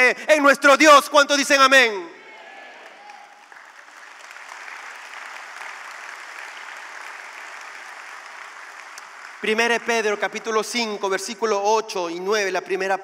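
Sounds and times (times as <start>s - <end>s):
congregation applauding: 2.4s - 11.5s.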